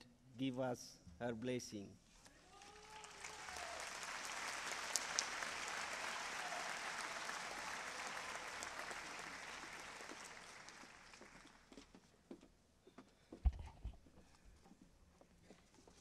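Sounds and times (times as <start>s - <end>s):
audience applauding: 2.4s - 11.8s.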